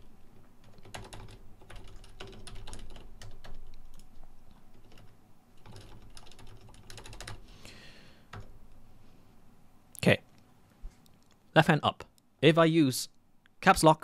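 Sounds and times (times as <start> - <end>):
computer keyboard typing: 0.4 - 7.4, 8.3 - 8.6.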